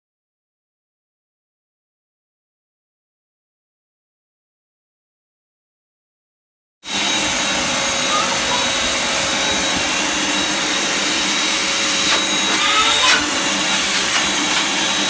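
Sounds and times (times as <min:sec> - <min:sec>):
vacuum cleaner running: 0:06.8 - 0:15.0.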